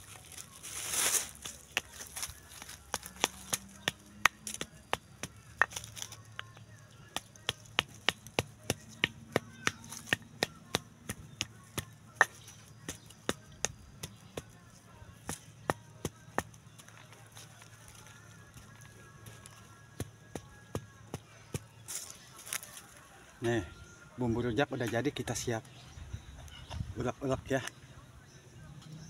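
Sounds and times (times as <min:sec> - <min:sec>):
stone pestle pounding in mortar: 0:07.2 - 0:14.6.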